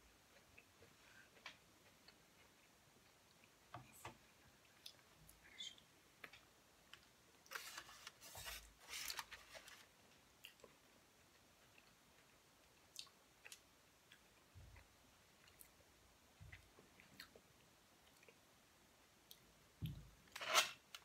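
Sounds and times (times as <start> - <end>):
soft chewing: 0.1 - 20.0
crackly rustling: 6.3 - 10.8.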